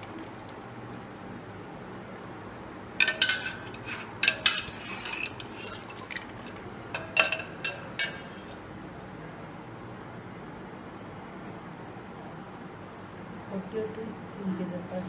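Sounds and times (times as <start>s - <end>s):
wire skimmer scraping metal pot: 3.0s - 8.6s.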